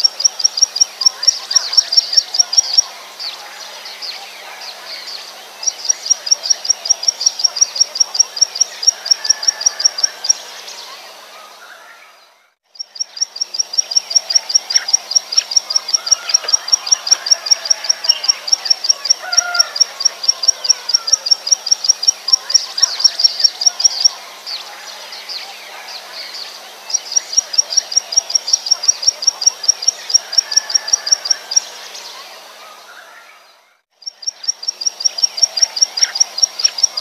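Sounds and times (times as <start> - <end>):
faint background bird calls: 0.0 - 37.0
bird song of sharp high notes: 11.6 - 37.0.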